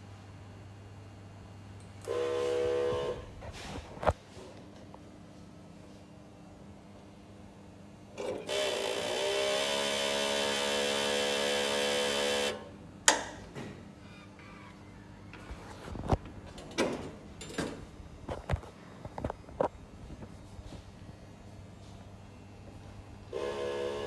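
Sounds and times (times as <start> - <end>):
printer motor whining: 8.2 - 12.7, 23.3 - 24.0.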